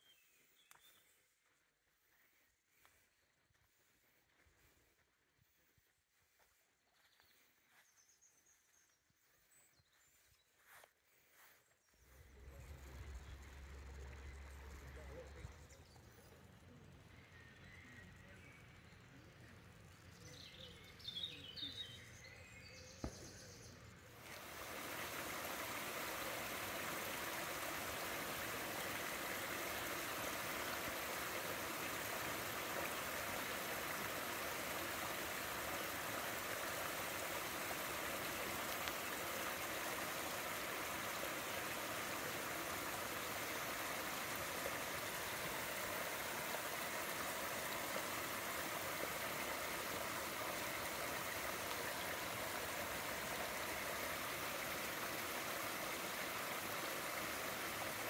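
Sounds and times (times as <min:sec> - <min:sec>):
water rushing over weir: 0:24.2 - 0:58.0.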